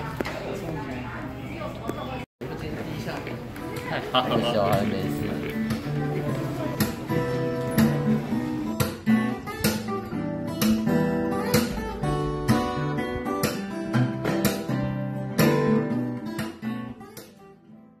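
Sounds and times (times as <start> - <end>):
strummed acoustic guitar: 3.8 - 18.0.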